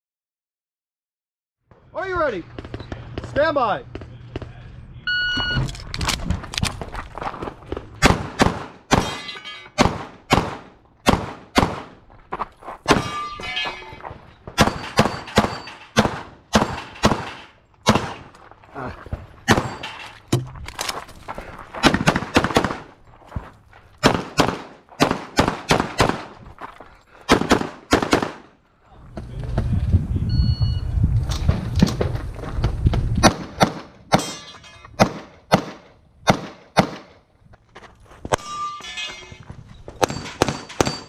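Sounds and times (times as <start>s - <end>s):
pistol shots: 8.0s - 12.0s, 14.6s - 18.3s, 19.5s - 19.8s, 21.8s - 22.9s, 24.0s - 26.4s, 27.3s - 28.5s, 33.2s - 34.4s, 35.0s - 37.2s.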